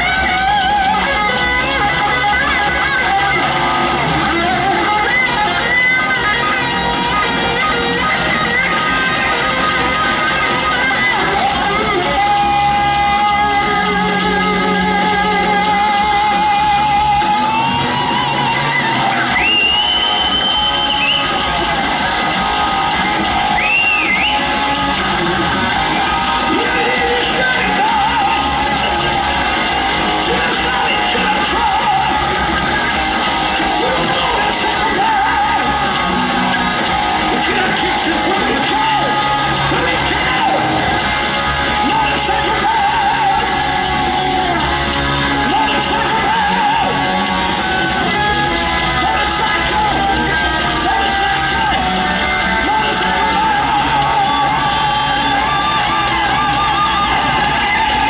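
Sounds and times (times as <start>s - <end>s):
bass guitar: 0.0s - 58.0s
distorted electric guitars: 0.0s - 58.0s
drums: 0.0s - 58.0s.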